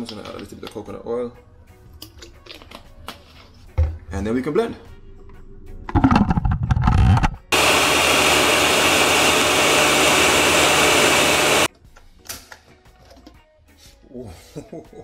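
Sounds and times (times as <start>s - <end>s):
blender whirring: 7.5s - 11.7s.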